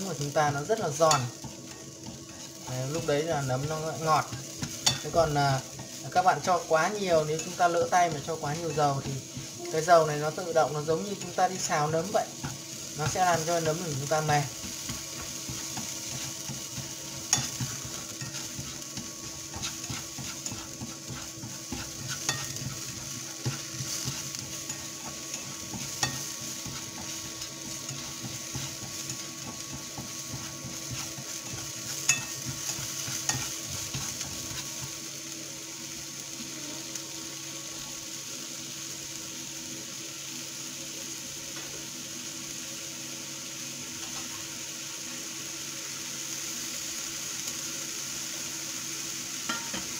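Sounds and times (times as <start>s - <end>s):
mushrooms sizzling in frying pan: 0.0s - 49.9s.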